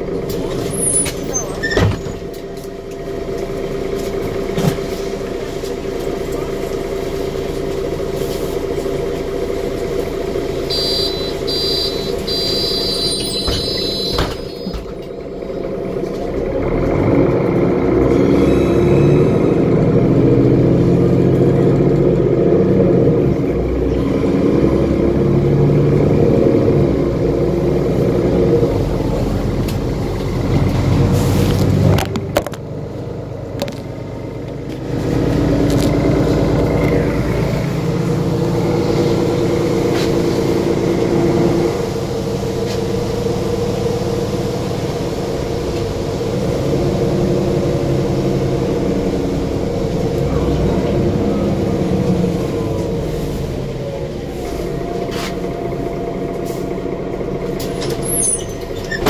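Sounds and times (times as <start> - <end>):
bus diesel engine: 0.0 - 59.0
short high beeps: 10.7 - 14.8.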